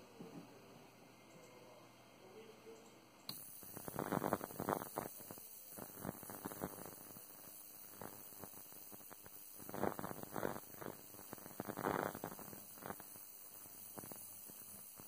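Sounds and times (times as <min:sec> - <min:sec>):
ultrasonic cleaner hissing and crackling: 0:03.3 - 0:15.0.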